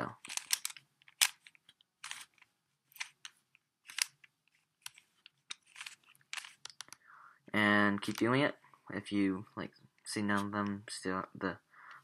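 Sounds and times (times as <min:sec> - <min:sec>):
puzzle cube plastic clicks: 0:00.1 - 0:07.0, 0:08.0 - 0:08.4.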